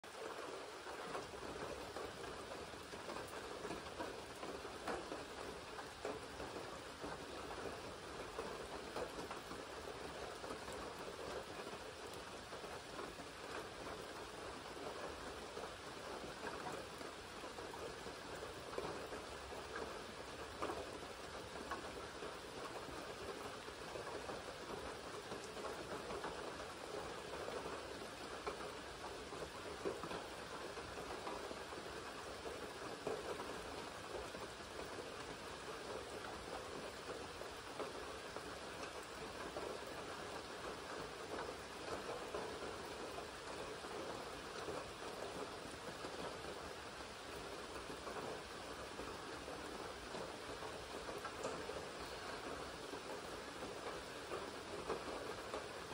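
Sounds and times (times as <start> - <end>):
rain falling on water and leaves: 0.0 - 55.9.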